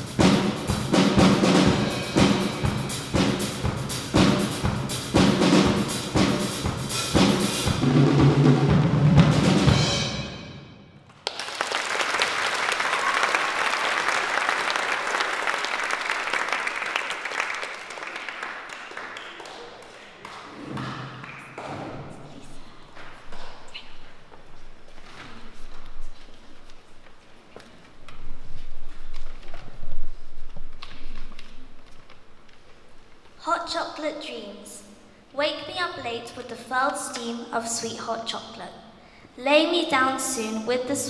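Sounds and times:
drum kit playing: 0.0 - 10.6
audience applause: 11.1 - 21.6.

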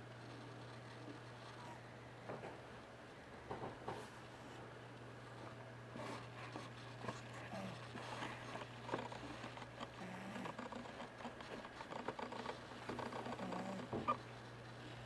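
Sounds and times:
small clicks and rustles: 5.0 - 15.0
cat snoring: 10.0 - 10.8, 12.0 - 14.2.

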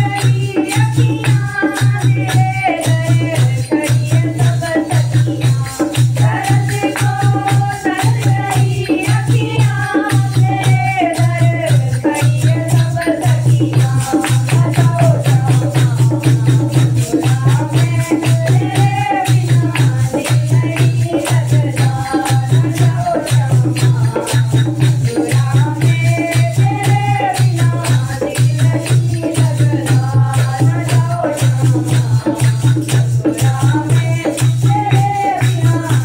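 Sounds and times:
jingles and hand cymbals: 0.0 - 36.0
women singing together: 0.0 - 36.0
hand clapping: 11.7 - 36.0.

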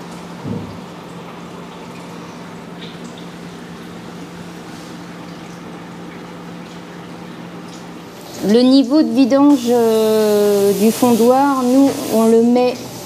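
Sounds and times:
liquid trickling and dripping: 0.0 - 12.9
steady machine hum: 0.0 - 13.0
short knock: 0.4 - 0.8.

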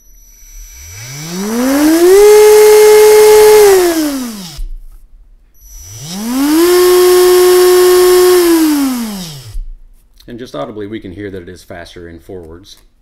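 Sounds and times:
electric motor whine: 0.0 - 4.7, 5.6 - 9.7.

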